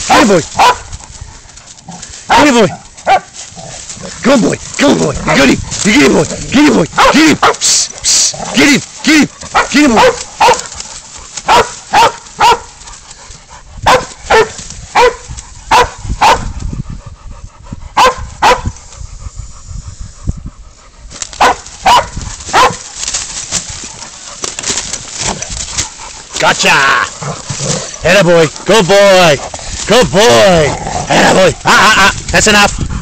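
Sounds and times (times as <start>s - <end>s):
dog barking: 0.1s - 0.9s, 2.3s - 3.3s, 7.0s - 7.6s, 9.5s - 10.7s, 11.4s - 12.7s, 13.8s - 16.5s, 18.0s - 18.7s, 21.4s - 22.8s.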